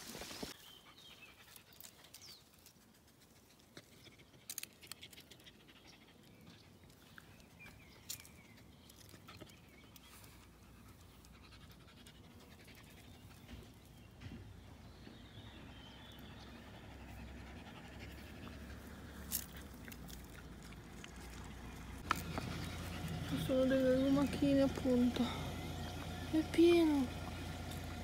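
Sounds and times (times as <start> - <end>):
small dog panting: 0.6 - 8.5, 9.1 - 14.0, 16.2 - 21.4, 22.0 - 24.3.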